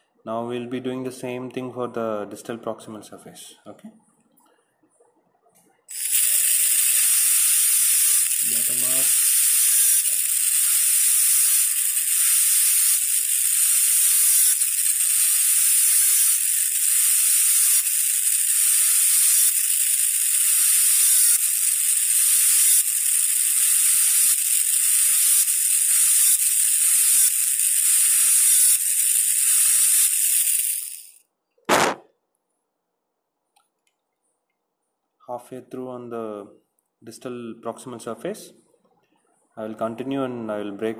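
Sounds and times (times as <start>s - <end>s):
dental drill whining: 5.9s - 31.2s.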